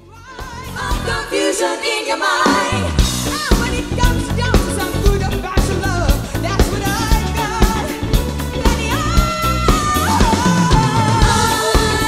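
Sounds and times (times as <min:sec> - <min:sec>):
bass guitar: 0:00.0 - 0:01.3, 0:02.5 - 0:12.0
woman singing with vibrato: 0:00.0 - 0:12.0
drum kit beat: 0:02.4 - 0:12.0.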